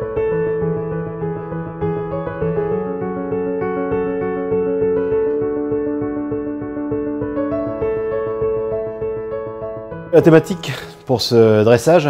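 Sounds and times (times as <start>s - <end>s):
soft piano and keyboard chords: 0.0s - 12.0s.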